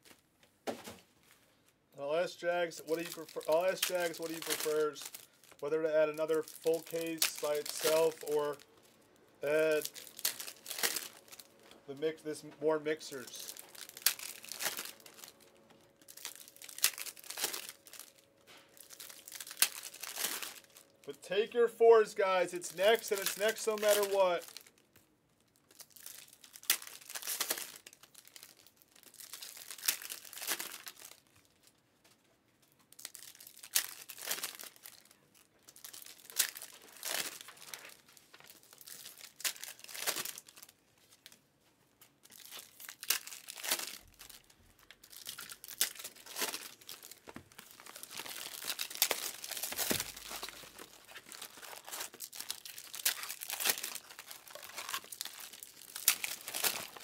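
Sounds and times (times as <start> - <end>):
card wrappers tearing and crinkling: 2.1 - 31.7, 32.7 - 57.0.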